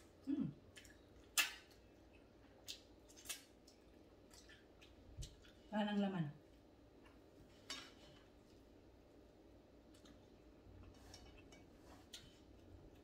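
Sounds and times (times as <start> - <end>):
faint clicks of eating at plate: 9.8 - 13.0.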